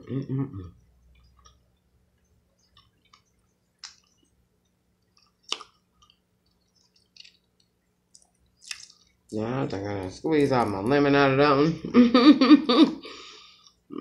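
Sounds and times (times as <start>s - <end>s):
chewing with wet clicks: 1.0s - 9.4s.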